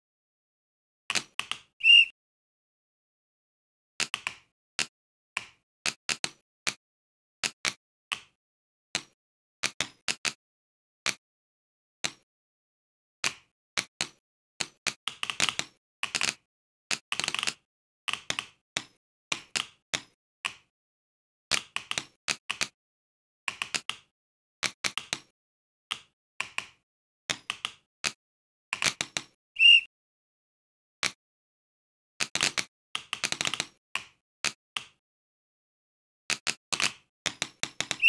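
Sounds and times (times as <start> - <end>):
short high beep: 1.8 - 2.1, 29.6 - 29.9.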